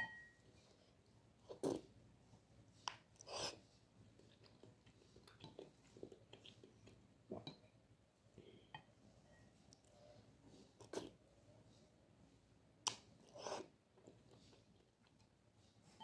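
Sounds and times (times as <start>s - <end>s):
soft wet chewing: 0.4s - 7.8s, 8.4s - 11.2s, 12.8s - 16.0s.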